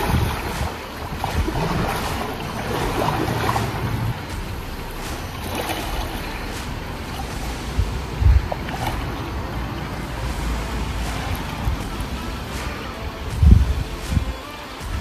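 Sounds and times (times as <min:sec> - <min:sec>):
river water rushing: 0:00.0 - 0:15.0
wind buffeting microphone: 0:00.0 - 0:15.0.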